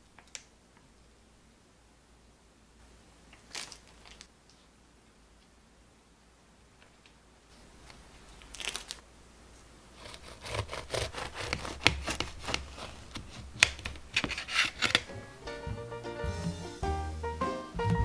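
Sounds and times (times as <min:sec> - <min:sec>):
knife sawing through crisp pastry: 0:10.0 - 0:15.0.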